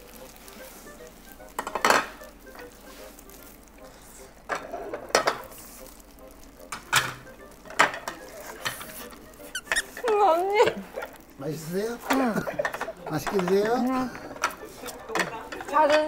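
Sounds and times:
ceramic plates clinking: 1.6s - 2.7s, 4.5s - 5.5s, 6.7s - 9.0s, 12.0s - 16.0s
close chewing: 2.2s - 11.4s.

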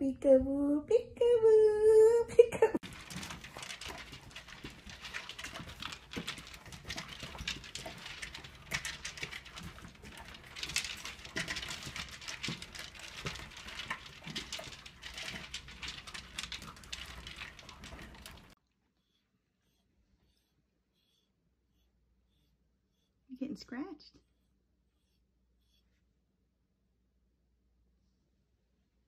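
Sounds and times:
kibble clattering in plastic bowls: 2.8s - 18.6s.

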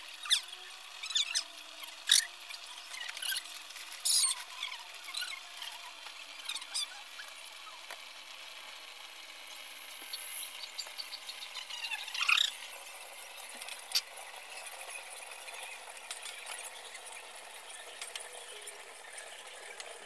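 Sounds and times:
pan simmering with hiss: 0.0s - 20.0s.

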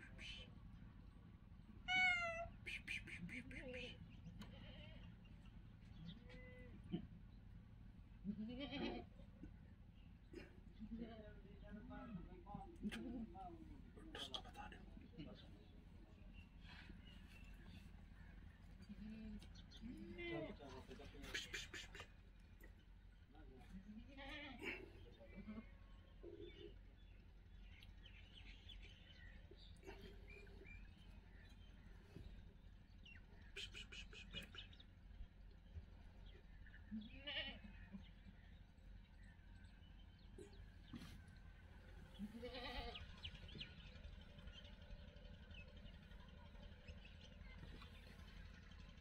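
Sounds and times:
short faint animal calls: 21.1s - 22.6s, 33.3s - 35.1s
faint bird chirps: 24.6s - 49.0s.

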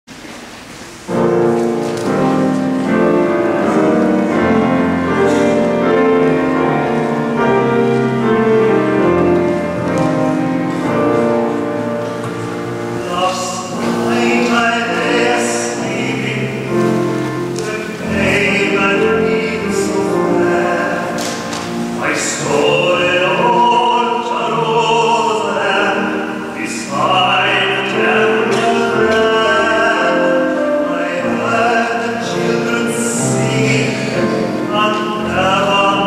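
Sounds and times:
keyboard accompaniment: 0.2s - 36.0s
tenor singing: 1.1s - 36.0s
choir singing: 22.0s - 36.0s.

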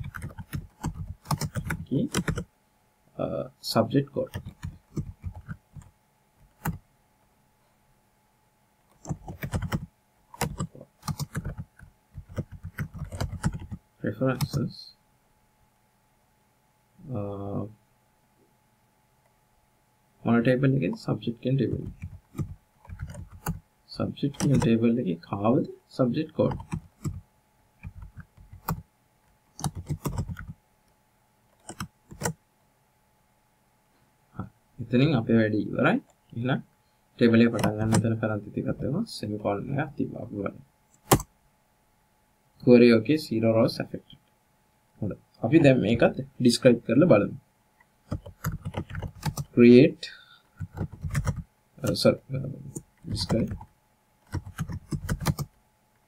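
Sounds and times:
typing on computer keyboard: 0.0s - 2.4s, 4.3s - 5.9s, 8.9s - 13.8s, 21.7s - 23.6s, 24.3s - 24.7s, 26.5s - 27.2s, 27.8s - 28.8s, 29.6s - 30.6s, 31.6s - 32.4s, 41.0s - 41.3s, 48.1s - 49.5s, 50.6s - 51.4s, 52.7s - 55.5s.

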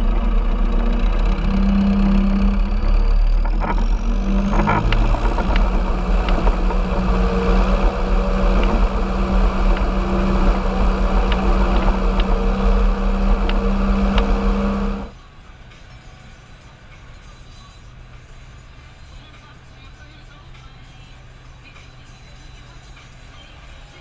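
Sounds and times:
tractor diesel engine running: 0.0s - 24.0s.

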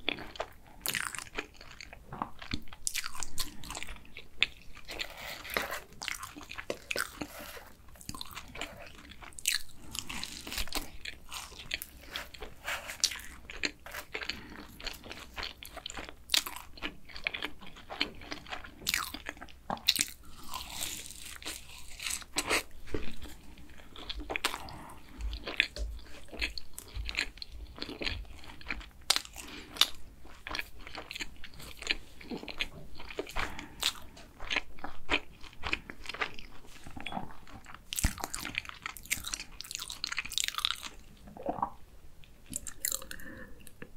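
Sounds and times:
pastry crunching while chewed: 0.0s - 41.8s, 42.4s - 43.9s.

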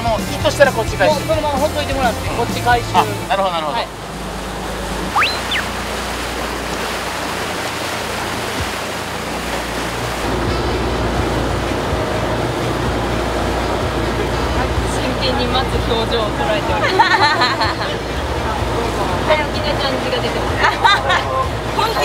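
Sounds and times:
rushing water from boat wake: 0.0s - 22.0s
short rising whistle tone: 5.1s - 5.9s.

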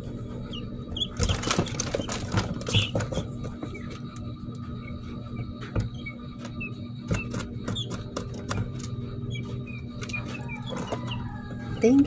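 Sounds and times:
chicks scratching and pecking on grit: 0.5s - 4.0s, 6.5s - 12.0s.

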